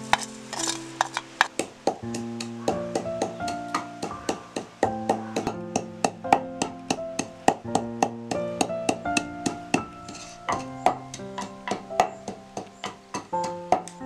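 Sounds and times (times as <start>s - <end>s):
piano melody: 0.0s - 14.0s.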